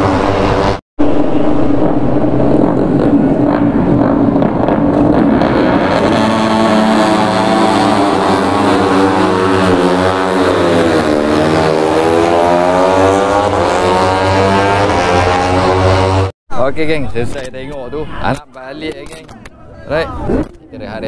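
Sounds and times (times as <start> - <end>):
racing motorcycle engines: 0.0 - 16.3.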